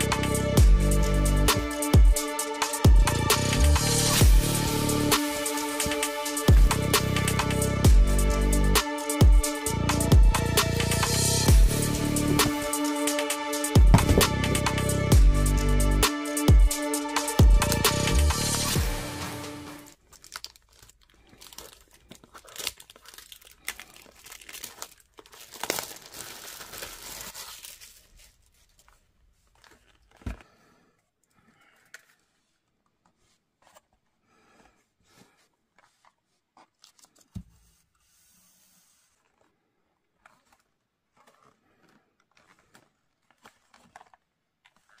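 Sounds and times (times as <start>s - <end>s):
background music: 0.0s - 19.9s
packaging torn and crinkled: 19.9s - 30.2s, 40.2s - 45.0s.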